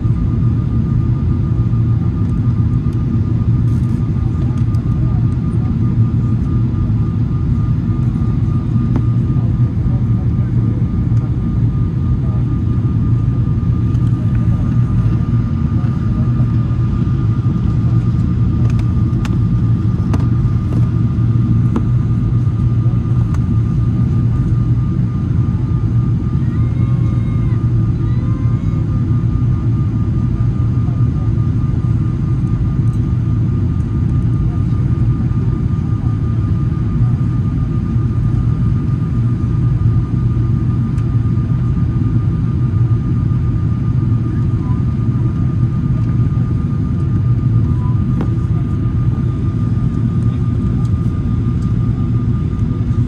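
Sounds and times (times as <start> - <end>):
airplane cabin rumble: 0.0 - 53.0.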